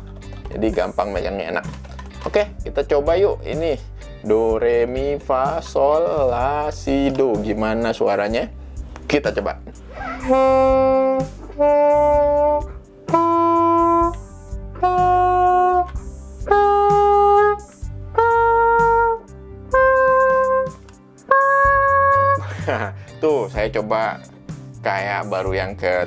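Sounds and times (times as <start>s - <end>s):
plastic saxophone held notes: 9.9s - 22.5s.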